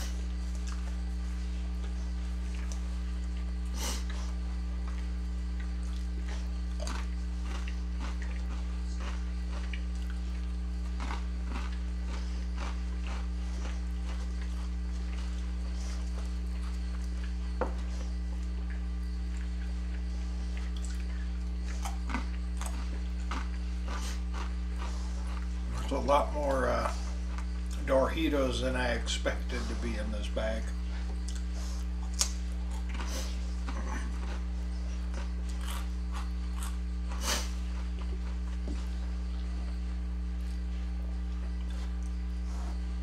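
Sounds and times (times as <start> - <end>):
steady low hum: 0.0 - 43.0
man sniffing: 3.7 - 4.2, 37.2 - 37.6
corn chips crunching: 5.8 - 17.2, 20.6 - 30.6, 31.2 - 38.6.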